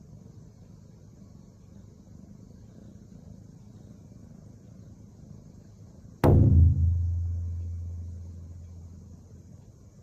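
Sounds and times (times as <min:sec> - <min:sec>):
deep booming hit sound effect: 0:06.2 - 0:08.9.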